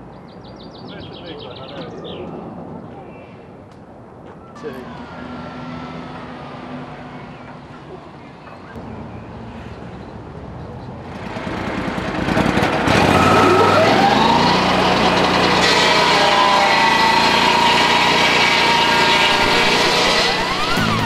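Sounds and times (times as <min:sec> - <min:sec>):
sawmill engine whining: 0:04.4 - 0:08.6, 0:11.0 - 0:21.0
circular saw cutting log: 0:11.2 - 0:21.0.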